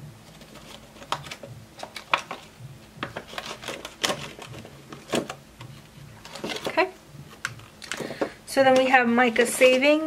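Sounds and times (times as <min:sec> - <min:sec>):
banknotes and plastic sleeve crinkling: 0:00.2 - 0:05.4
sharp plastic crackles: 0:00.4 - 0:05.4.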